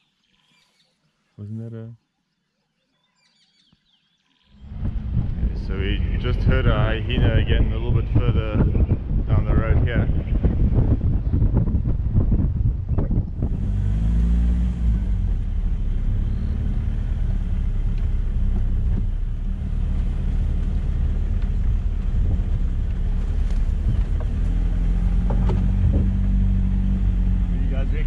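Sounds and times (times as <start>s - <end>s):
vehicle engine pulling away: 4.6s - 28.0s.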